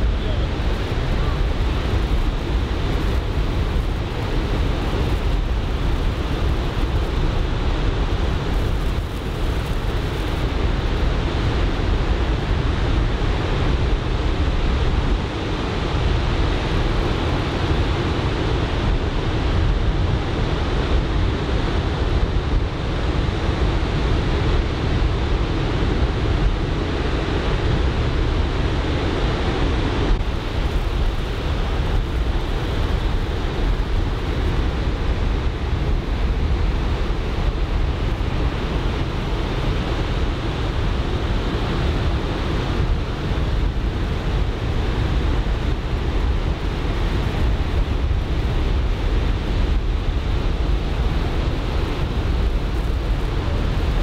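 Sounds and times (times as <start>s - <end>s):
wind buffeting microphone: 0.0s - 54.0s
breaking surf: 30.2s - 54.0s.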